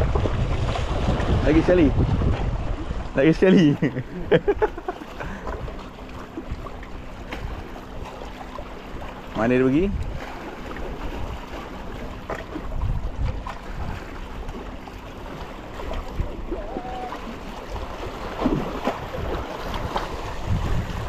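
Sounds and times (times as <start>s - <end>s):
wind on microphone: 0.0s - 3.4s, 9.8s - 11.4s, 12.4s - 14.6s, 15.2s - 21.0s
sea waves washing: 0.0s - 21.0s.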